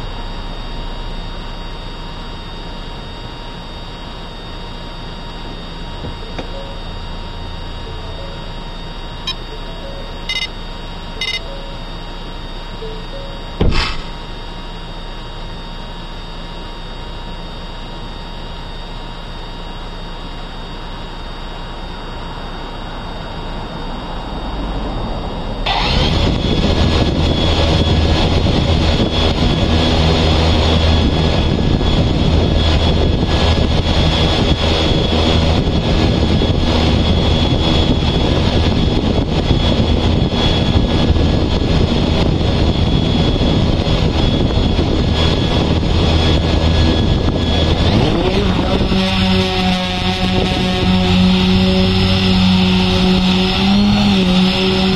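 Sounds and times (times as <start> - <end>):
low steady hum: 0.0 - 54.9
vehicle engine droning: 22.4 - 54.9.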